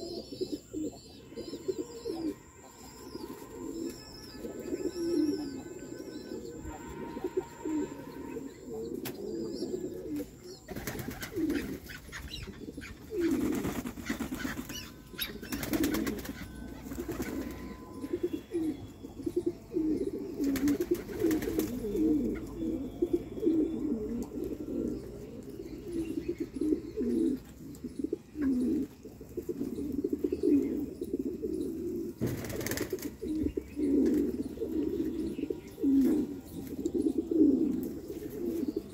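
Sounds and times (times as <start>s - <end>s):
pigeons cooing: 0.0s - 38.9s
wings flapping: 10.7s - 11.9s, 13.2s - 14.9s, 15.5s - 17.6s, 20.4s - 21.9s, 32.2s - 33.2s.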